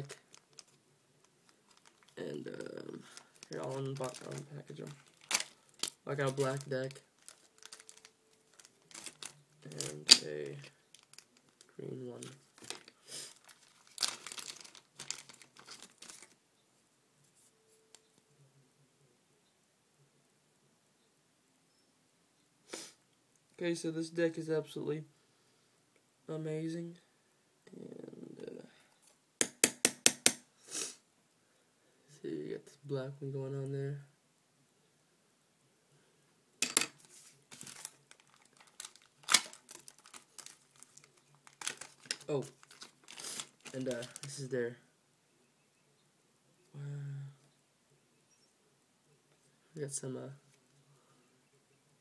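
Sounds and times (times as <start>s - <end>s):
plastic bag crinkling: 0.0s - 16.4s, 36.6s - 44.5s.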